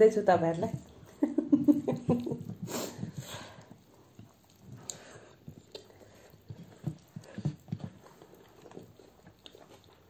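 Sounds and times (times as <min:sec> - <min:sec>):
people chewing and lip smacking: 0:00.5 - 0:10.0.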